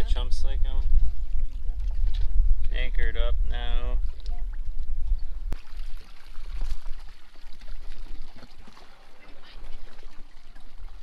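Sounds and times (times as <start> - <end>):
wind rumble on microphone: 0.0 - 5.6
water lapping against boat hull: 3.8 - 11.0.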